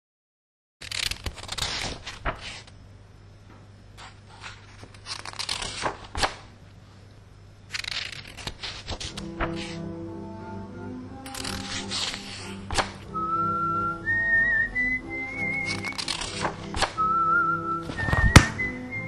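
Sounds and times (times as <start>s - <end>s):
pages flapping and clicking: 0.8s - 2.8s, 4.0s - 6.5s, 7.7s - 9.8s, 11.2s - 13.0s, 15.5s - 17.0s, 17.8s - 18.7s
paper pages rustling: 0.8s - 2.8s, 4.0s - 6.5s, 7.7s - 9.8s, 11.2s - 13.0s, 15.4s - 17.0s, 17.8s - 18.7s.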